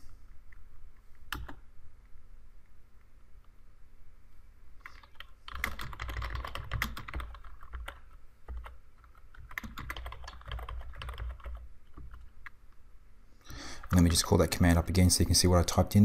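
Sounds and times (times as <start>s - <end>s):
computer keyboard typing: 1.3s - 1.6s, 4.8s - 12.6s.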